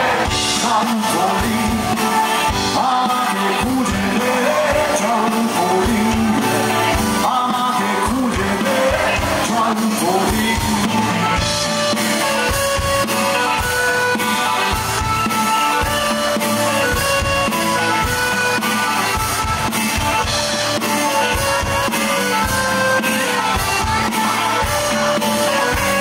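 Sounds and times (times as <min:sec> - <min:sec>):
man singing: 0:00.0 - 0:14.8
rock band playing: 0:00.0 - 0:26.0.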